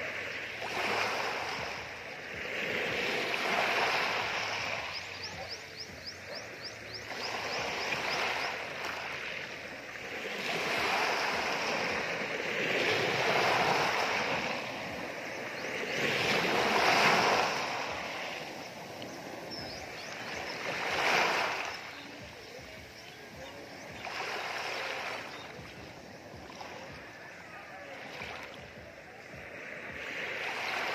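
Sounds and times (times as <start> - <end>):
sea waves washing over pebbles: 7.5 - 22.4.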